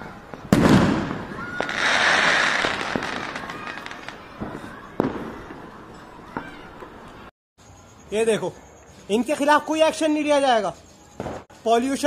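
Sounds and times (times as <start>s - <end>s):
firecrackers crackling and popping: 0.2s - 5.7s
sharp firework bang: 0.5s - 3.2s.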